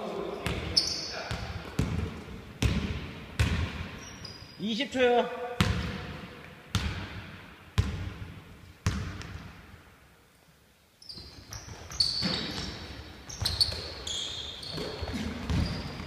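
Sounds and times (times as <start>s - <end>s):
sneakers squeaking: 0.3s - 2.8s, 3.4s - 4.6s, 11.0s - 16.0s
basketball bouncing on wood floor: 1.3s - 3.9s, 5.6s - 7.2s, 7.8s - 9.5s, 14.6s - 16.0s.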